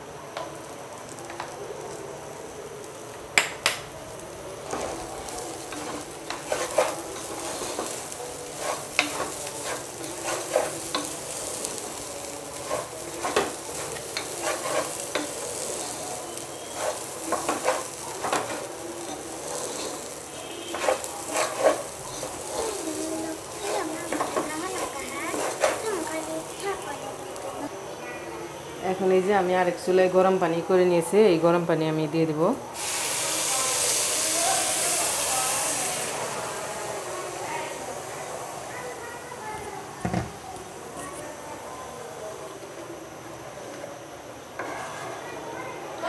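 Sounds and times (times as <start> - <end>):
rice sizzling in pot: 0.0 - 27.7, 28.8 - 46.0
spatula scraping metal pot: 5.8 - 11.2, 12.6 - 22.8.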